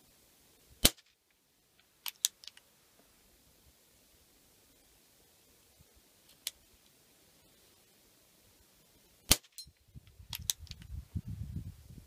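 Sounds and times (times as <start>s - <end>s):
air pistol shot crack: 0.8s - 1.1s, 9.3s - 9.6s
sharp clicks: 2.0s - 2.6s, 9.3s - 10.9s.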